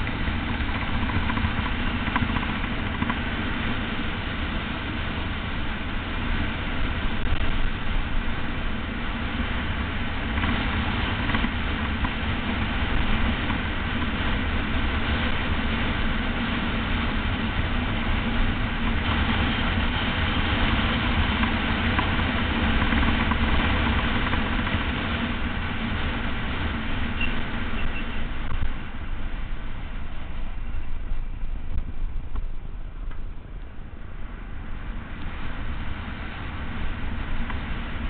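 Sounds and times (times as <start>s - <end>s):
tyre noise on asphalt: 0.0s - 38.0s
wind buffeting microphone: 0.0s - 38.0s.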